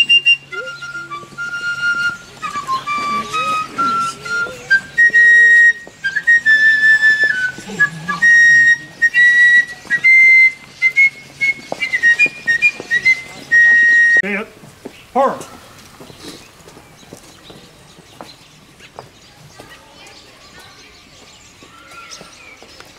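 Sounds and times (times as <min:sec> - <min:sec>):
flute playing slow melody: 0:00.0 - 0:14.2.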